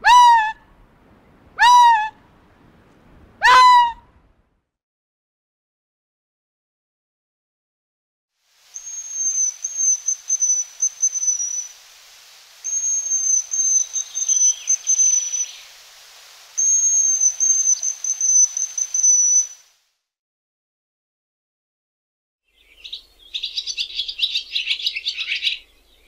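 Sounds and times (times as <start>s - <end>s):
hazel grouse whistled song: 8.8s - 11.8s, 12.6s - 15.7s, 16.6s - 19.7s.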